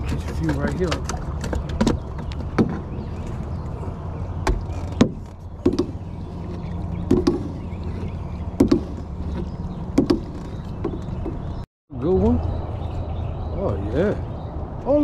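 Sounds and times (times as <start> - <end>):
knocks on metal boat hull: 10.0 - 11.4.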